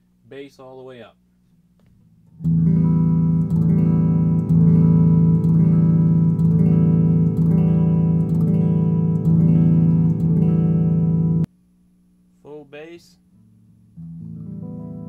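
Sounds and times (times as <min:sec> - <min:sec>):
electric guitar chords ringing: 0:02.3 - 0:11.5, 0:13.4 - 0:15.0.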